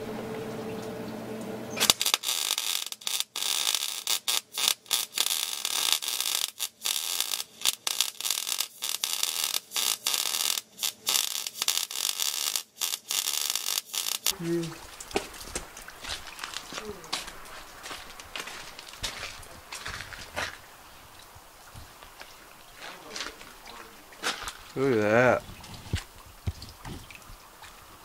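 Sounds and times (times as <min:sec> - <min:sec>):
arc welding crackling: 0:01.8 - 0:19.6.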